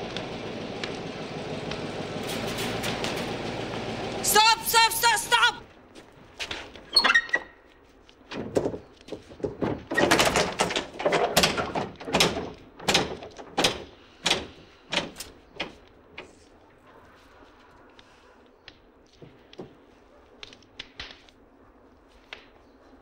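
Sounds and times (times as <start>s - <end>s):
wooden tailgate banging: 8.3s - 15.8s
metal latches clattering: 8.3s - 16.3s.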